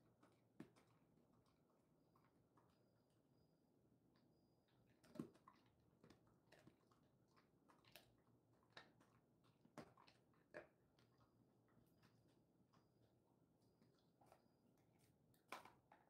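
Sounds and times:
dog crunching a chew treat: 4.8s - 13.2s.

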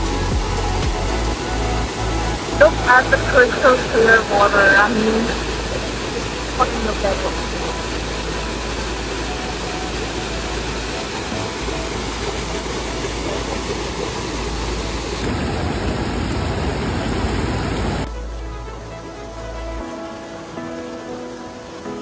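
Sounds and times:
music: 0.0s - 15.2s, 18.1s - 22.0s
waterfall crashing onto rocks: 0.0s - 22.0s.

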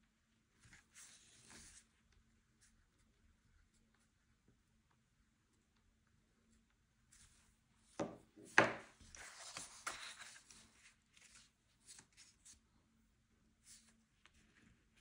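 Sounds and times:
knock: 8.0s - 8.9s.

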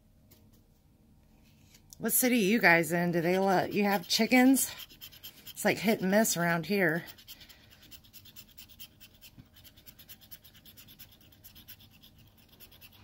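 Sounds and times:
coin scratching a ticket: 3.1s - 13.0s.

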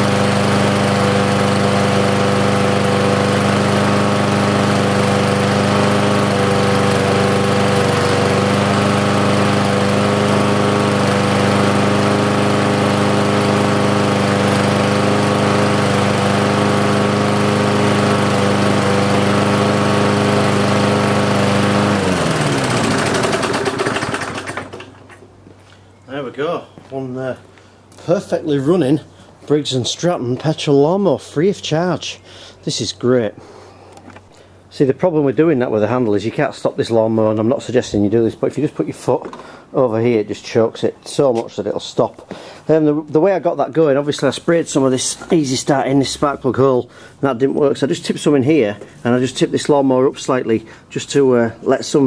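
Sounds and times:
lawnmower engine running: 0.0s - 25.4s.

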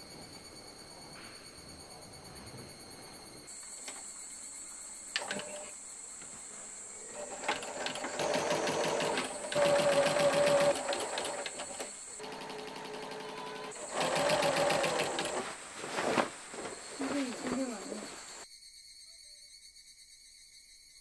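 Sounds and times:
sewing machine stitching: 5.2s - 5.7s, 7.0s - 18.4s.

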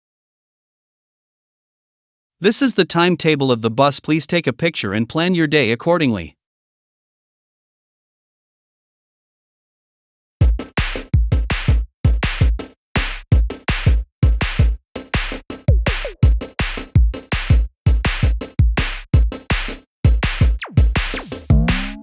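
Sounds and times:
electronic music with drum-machine beat: 10.4s - 22.0s.

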